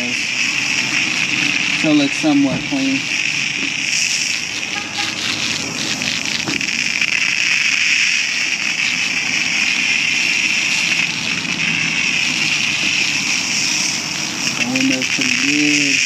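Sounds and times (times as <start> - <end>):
pressure washer spraying foam: 0.0 - 16.0.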